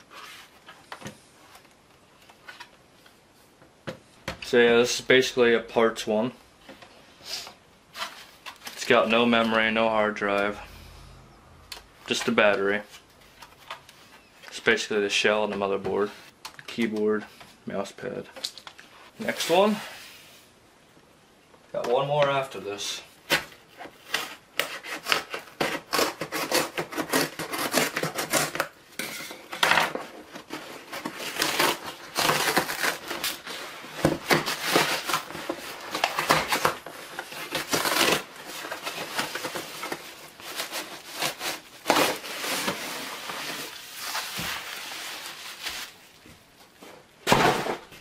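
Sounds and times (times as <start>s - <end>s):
cardboard box being torn open: 23.3s - 28.8s, 30.4s - 44.5s
plastic wrap crackling: 30.5s - 46.2s.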